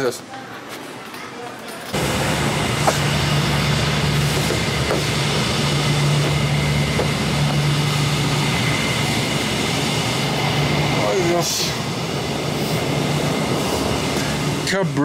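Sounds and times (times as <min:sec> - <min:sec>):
vehicle running noise: 0:02.0 - 0:14.6.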